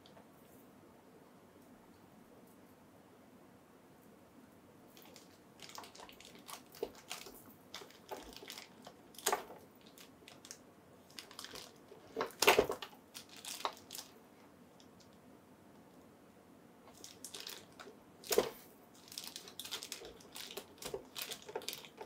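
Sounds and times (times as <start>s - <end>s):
stiff packaging cracking: 5.0s - 14.2s, 16.9s - 22.0s.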